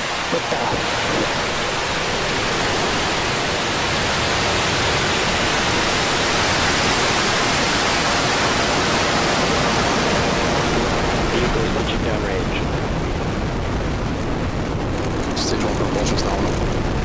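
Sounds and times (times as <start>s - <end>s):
rocket engine roar: 0.0s - 17.0s.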